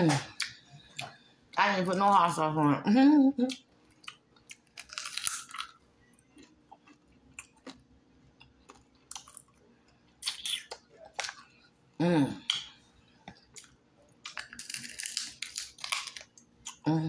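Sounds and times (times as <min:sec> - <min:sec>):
close-up chewing crunches: 0:03.5 - 0:11.5, 0:13.3 - 0:16.8
crunchy fried food bite: 0:04.0 - 0:05.8, 0:14.3 - 0:16.8.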